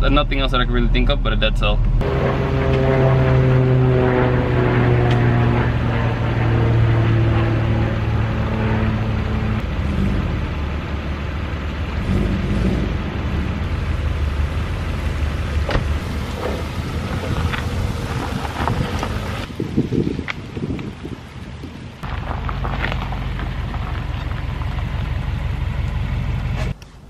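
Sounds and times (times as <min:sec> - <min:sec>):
car engine running: 0:00.0 - 0:19.5, 0:21.4 - 0:26.8
tyres crunching over gravel: 0:15.6 - 0:27.0.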